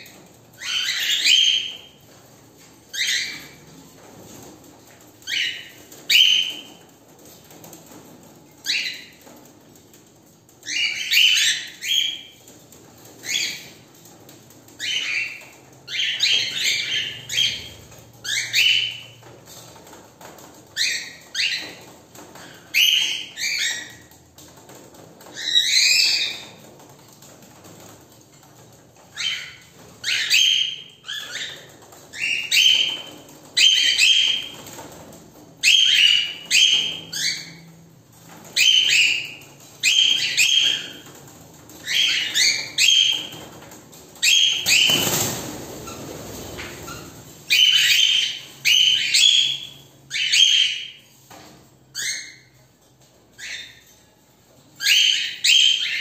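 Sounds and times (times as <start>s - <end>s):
cockatiels calling: 0.0s - 2.0s, 2.9s - 3.6s, 5.2s - 6.7s, 8.6s - 9.3s, 10.6s - 12.4s, 13.2s - 13.8s, 14.8s - 19.2s, 19.8s - 24.2s, 25.2s - 26.6s, 29.1s - 34.9s, 35.6s - 37.7s, 38.4s - 51.0s, 51.9s - 52.6s, 53.4s - 54.0s, 54.8s - 56.0s.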